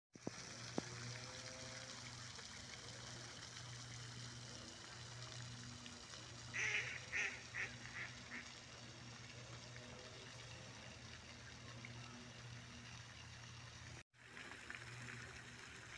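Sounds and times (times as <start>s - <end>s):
duck quacking: 6.6s - 8.4s.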